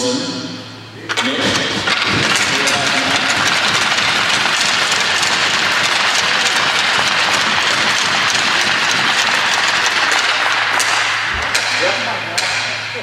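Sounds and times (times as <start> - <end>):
crowd applauding: 1.9 - 11.3.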